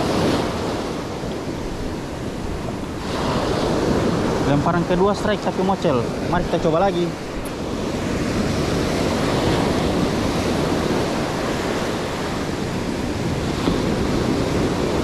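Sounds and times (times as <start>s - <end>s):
waves breaking on a beach: 0.0s - 15.0s.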